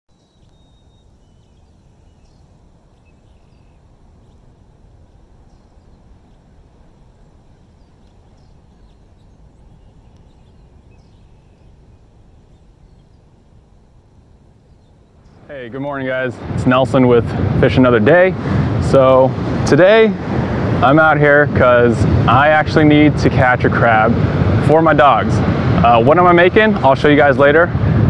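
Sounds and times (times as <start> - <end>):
faint bird calls: 0.1 - 15.5.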